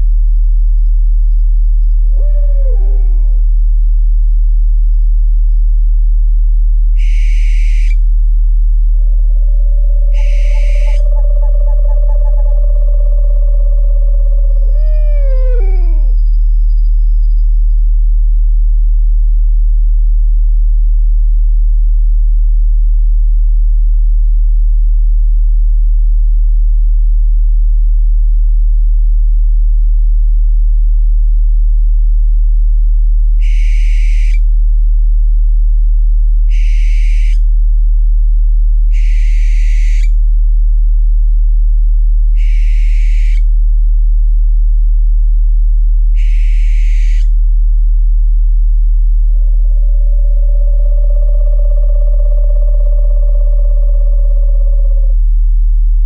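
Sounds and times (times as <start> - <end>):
deep drone tone: 0.0 - 22.0, 32.5 - 56.0
owl screeching: 2.1 - 3.4, 7.0 - 8.0, 9.3 - 16.8, 33.4 - 34.4, 36.5 - 37.4, 38.9 - 40.2, 42.4 - 43.5, 46.2 - 47.4, 49.6 - 55.2.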